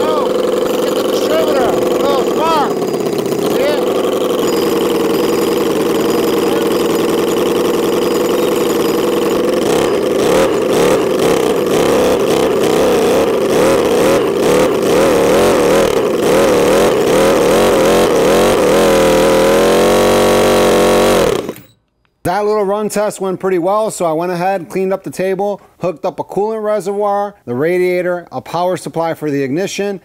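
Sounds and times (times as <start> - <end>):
small engine revving: 0.0 - 21.7.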